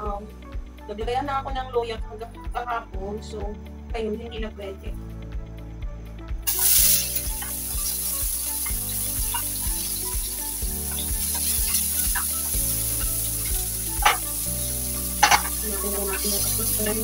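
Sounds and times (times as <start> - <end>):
onions frying while stirred: 6.5 - 17.0
onions sizzling in hot oil: 6.5 - 17.0.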